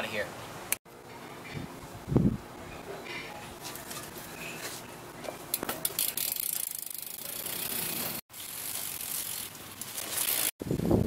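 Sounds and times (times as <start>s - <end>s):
bike hub ratcheting clicks: 5.5s - 10.5s.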